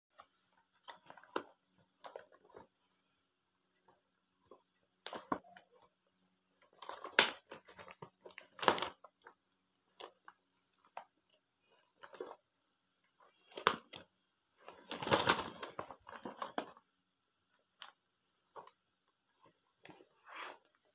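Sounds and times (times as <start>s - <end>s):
plastic packaging crinkling: 6.7s - 9.1s, 14.6s - 16.8s.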